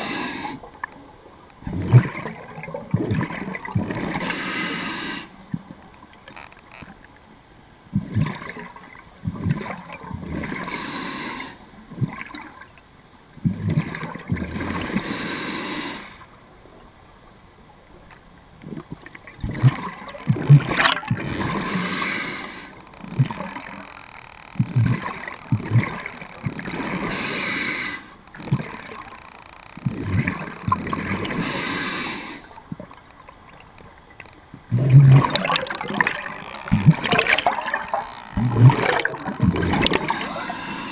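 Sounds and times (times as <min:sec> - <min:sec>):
hissing inhale through regulator: 0:00.0 - 0:00.7, 0:04.2 - 0:05.4, 0:10.6 - 0:11.8, 0:15.0 - 0:16.3, 0:21.6 - 0:22.8, 0:27.0 - 0:28.2, 0:31.3 - 0:32.5, 0:39.9 - 0:40.9
exhaled bubbles gurgling underwater: 0:00.0 - 0:06.2, 0:07.9 - 0:12.8, 0:13.4 - 0:15.8, 0:18.5 - 0:24.0, 0:24.6 - 0:40.9.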